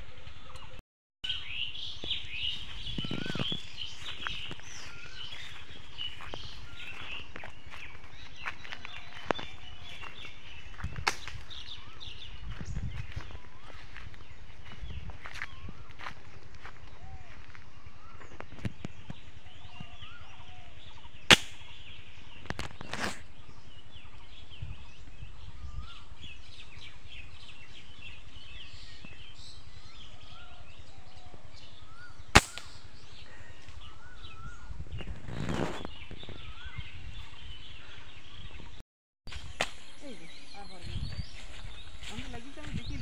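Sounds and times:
small birds chirping: 0.0 - 43.0
sharp loud clicks: 21.3 - 21.7, 32.3 - 32.8.

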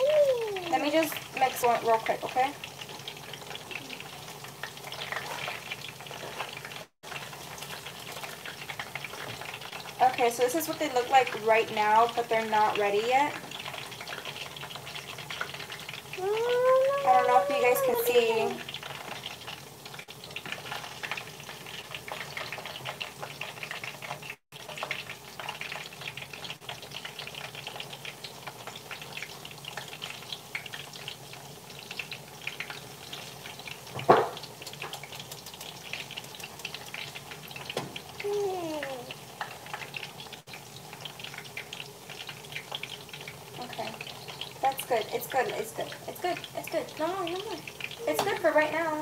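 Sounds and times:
food sizzling in hot oil: 0.0 - 49.0.

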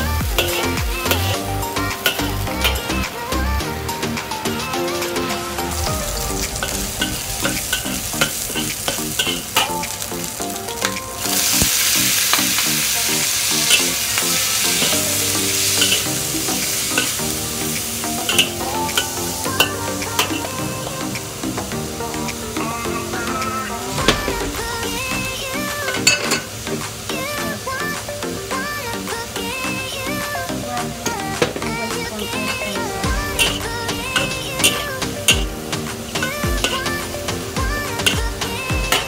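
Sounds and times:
background music: 0.0 - 39.0
vegetables sizzling in a wok: 5.7 - 21.4.

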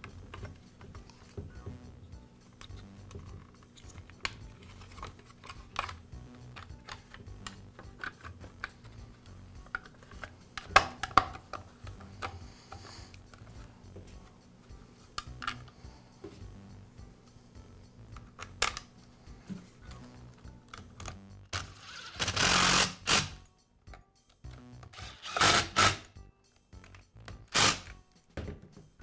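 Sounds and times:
plastic clicks and taps: 9.6 - 13.4.

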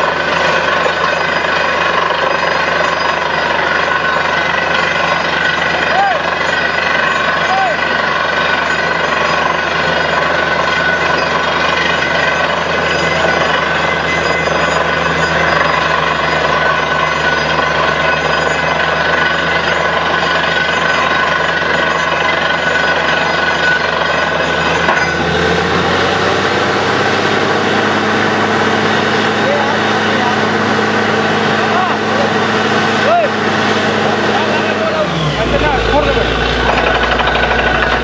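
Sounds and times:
drilling rig machine din: 0.0 - 38.0.

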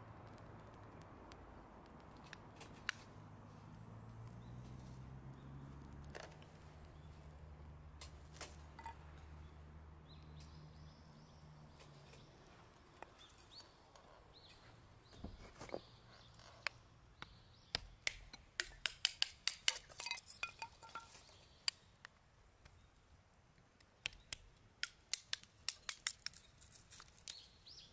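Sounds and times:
kindling sticks clicking on metal grill: 17.8 - 21.8, 24.0 - 27.4.

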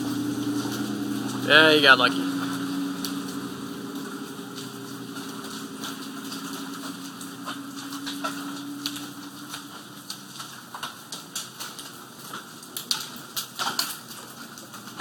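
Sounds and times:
passing car engine hum: 0.0 - 10.7
hailstones striking pavement: 0.0 - 15.0.

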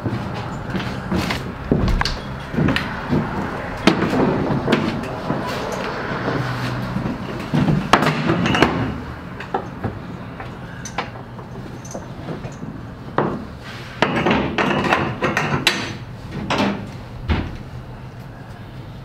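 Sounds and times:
knocks in enclosed trailer: 0.1 - 5.6
straps and metal hooks rattling: 0.3 - 8.8, 10.8 - 12.8.

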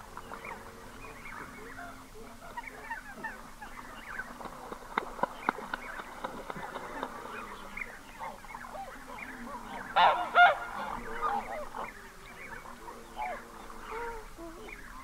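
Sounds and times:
chatter of goose calls: 0.4 - 4.3, 6.8 - 15.0
goose honking: 9.9 - 11.9.

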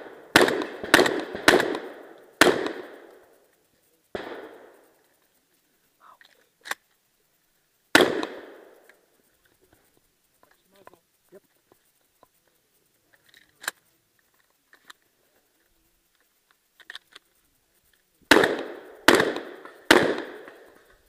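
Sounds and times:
shotgun shots with echo: 0.0 - 3.1, 4.2 - 4.7, 7.9 - 8.7, 18.3 - 20.7.

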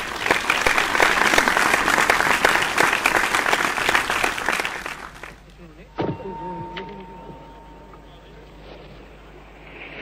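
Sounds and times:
crowd applauding: 0.0 - 5.5.

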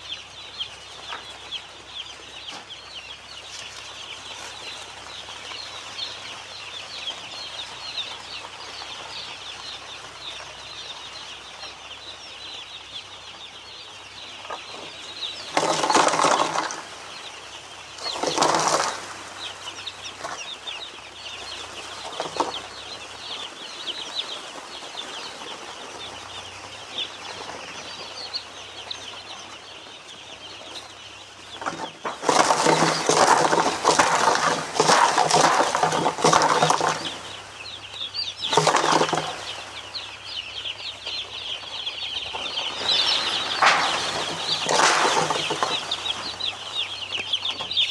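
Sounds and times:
chicks peeping: 0.0 - 47.9
loud bursts of noise: 42.3 - 46.6.

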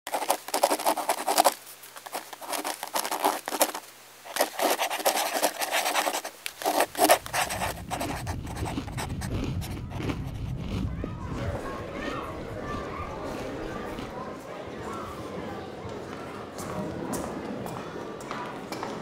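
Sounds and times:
crayon scratching on paper: 0.1 - 10.6.

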